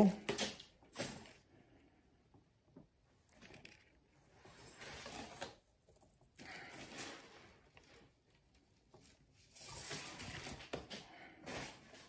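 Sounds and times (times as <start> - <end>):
rustling and scraping of wires: 3.2 - 12.0.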